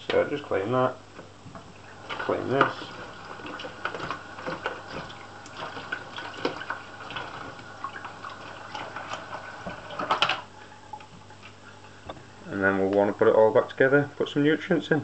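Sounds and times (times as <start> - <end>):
cloth scrubbing plastic bucket: 1.6 - 11.8.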